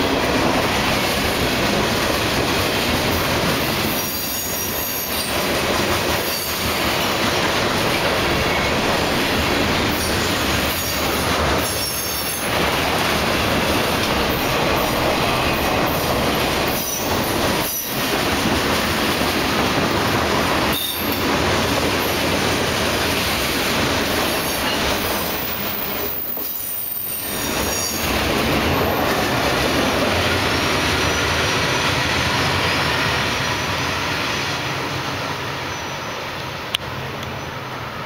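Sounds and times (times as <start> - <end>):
train wheels rumbling on rail: 0.0 - 38.0
high-pitched wheel squeals: 25.6 - 28.1.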